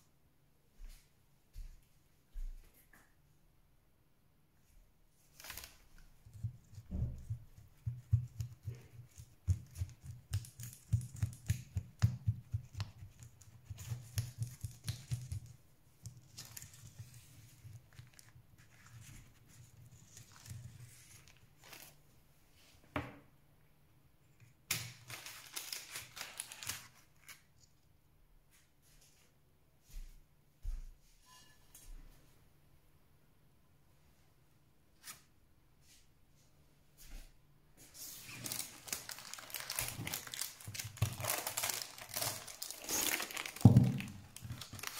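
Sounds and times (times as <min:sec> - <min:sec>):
baking paper rustling: 0:05.2 - 0:22.0, 0:24.7 - 0:27.6, 0:37.9 - 0:44.9.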